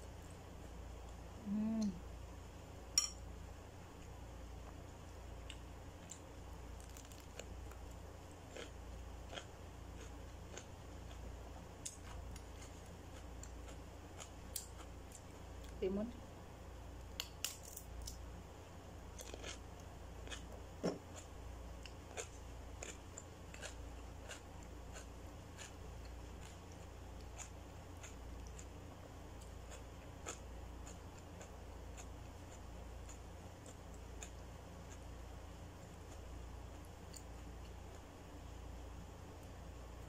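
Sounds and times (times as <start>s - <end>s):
low steady hum: 0.0s - 40.0s
spoon in a bowl: 3.0s - 3.2s
chewing: 5.4s - 7.9s, 8.5s - 15.8s, 19.1s - 28.7s, 29.4s - 35.1s.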